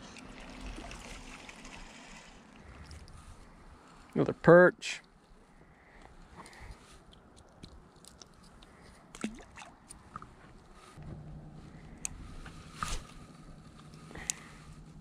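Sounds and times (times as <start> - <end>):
faint low hum: 8.7 - 15.0.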